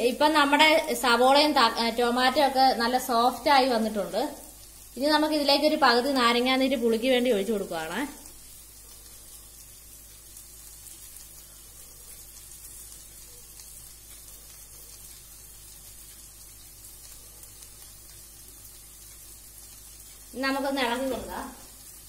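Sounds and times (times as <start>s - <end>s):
masala sizzling in a pan: 0.0s - 22.0s.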